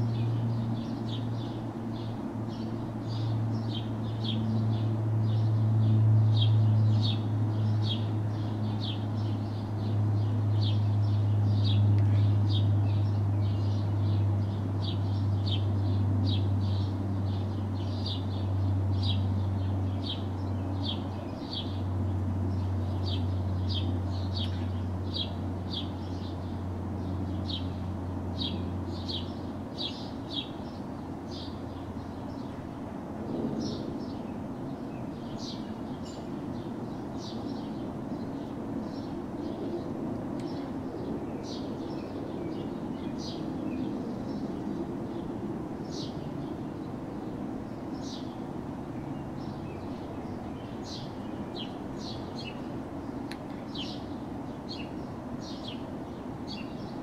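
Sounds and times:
distant city traffic hum: 0.0s - 57.0s
small birds chirping: 0.0s - 57.0s.

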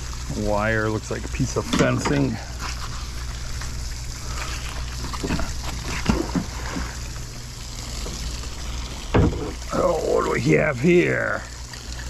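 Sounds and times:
steady low hum: 0.0s - 12.0s
wet rope dripping and splashing: 2.2s - 7.3s.

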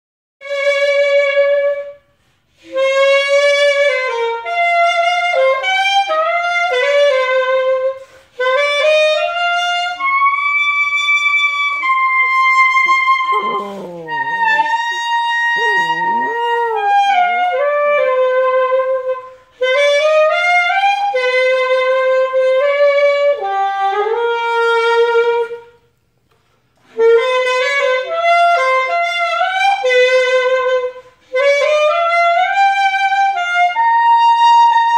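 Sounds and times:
saxophone slow melody: 0.4s - 26.0s, 26.8s - 34.9s
puppy howling: 12.2s - 17.4s.

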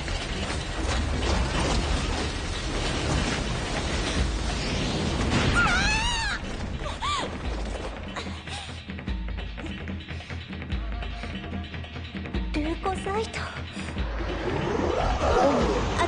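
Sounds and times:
rumbling and grinding noise: 0.0s - 8.5s, 13.9s - 16.0s
creature shrieking: 5.5s - 6.4s.

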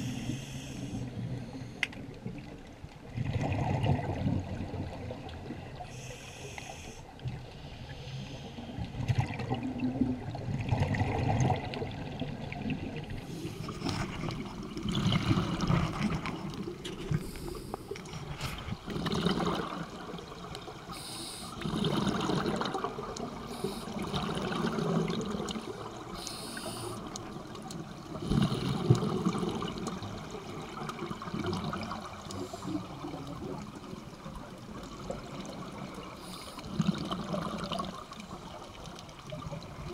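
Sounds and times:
diver exhaling bubbles: 3.2s - 4.8s, 13.1s - 20.2s, 21.5s - 26.9s, 28.1s - 33.7s, 36.6s - 38.1s
regulator hiss: 5.9s - 7.0s, 26.2s - 27.1s.

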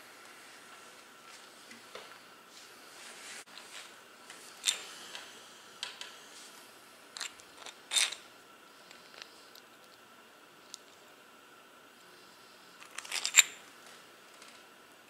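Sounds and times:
metal parts clinking: 7.2s - 8.2s, 12.8s - 13.6s.

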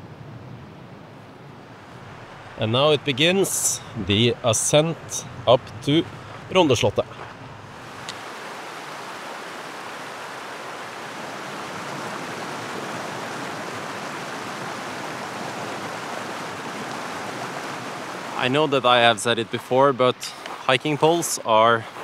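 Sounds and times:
steady rushing noise: 0.0s - 10.8s.

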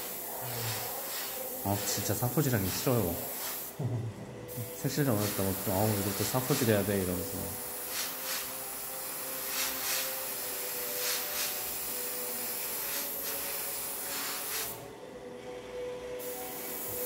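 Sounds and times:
airbrush puffs: 0.0s - 3.8s, 4.6s - 6.9s, 7.8s - 8.5s, 9.4s - 10.2s, 10.8s - 11.6s, 12.6s - 14.8s
airbrush spraying: 0.0s - 3.8s, 4.5s - 14.9s, 16.2s - 17.0s.

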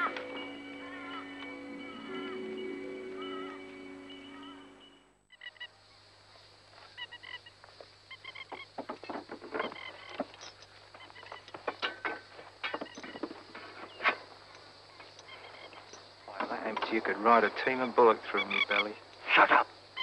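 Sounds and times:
honking calls: 0.0s - 5.7s, 15.2s - 20.0s.

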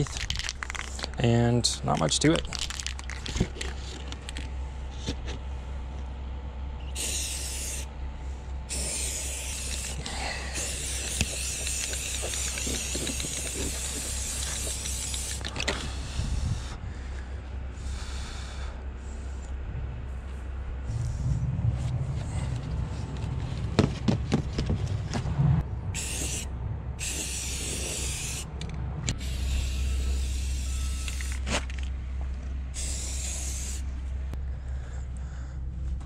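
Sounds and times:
aerosol spray can hissing: 7.0s - 7.9s, 8.7s - 15.4s, 26.0s - 28.5s, 29.2s - 31.4s, 32.8s - 33.9s.

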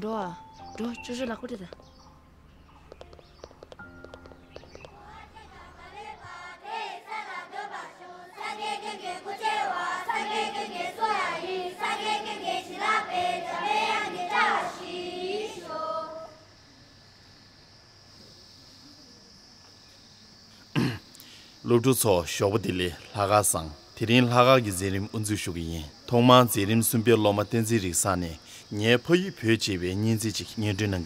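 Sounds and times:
children singing together: 4.8s - 16.5s.

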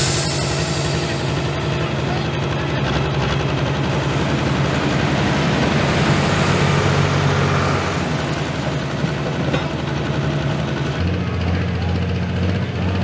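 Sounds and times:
rushing hiss: 0.0s - 1.4s
tractor engine idling: 0.0s - 13.0s.

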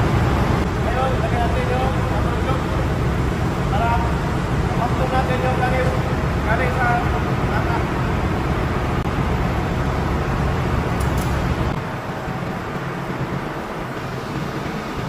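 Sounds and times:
machinery hum: 0.0s - 15.0s.

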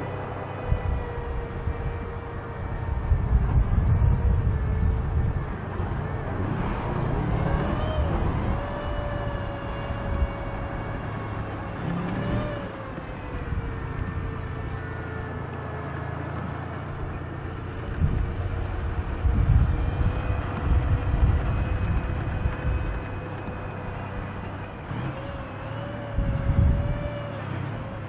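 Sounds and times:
diesel engine rumbling: 0.0s - 28.0s
steady whine: 0.0s - 28.0s
tracked vehicle driving over dirt: 0.0s - 28.0s.

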